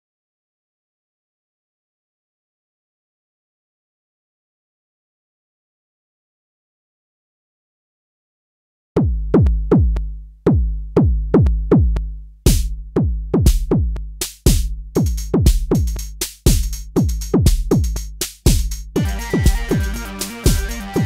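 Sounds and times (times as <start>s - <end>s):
deep kick drums: 9.0s - 21.0s
fast hi-hat: 12.5s - 12.8s, 13.4s - 21.0s.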